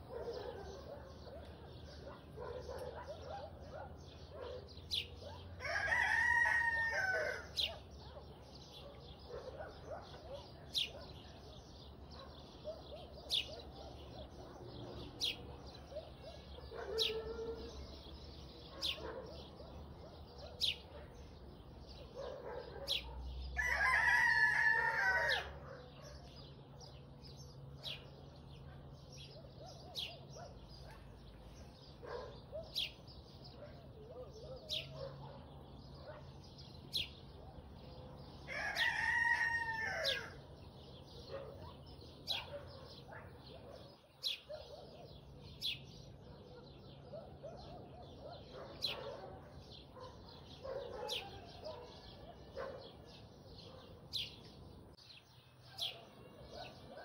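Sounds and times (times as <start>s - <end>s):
small birds chirping: 0.0s - 57.0s
rooster crowing: 5.6s - 7.5s, 23.6s - 25.6s, 38.5s - 40.4s.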